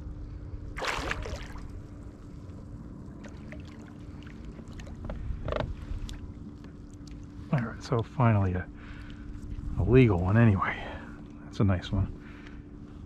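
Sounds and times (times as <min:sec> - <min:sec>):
fish thrashing and splashing: 0:00.8 - 0:01.8.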